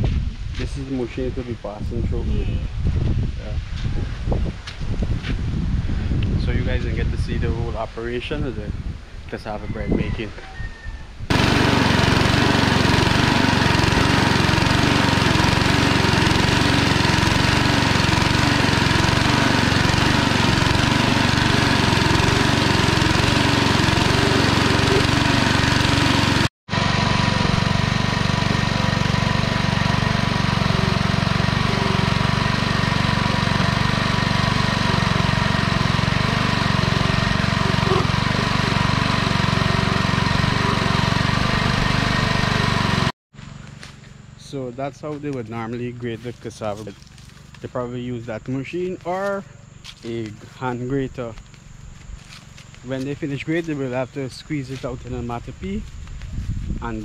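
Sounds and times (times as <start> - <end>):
motor-driven grater grating: 11.3 - 26.5, 27.2 - 43.1.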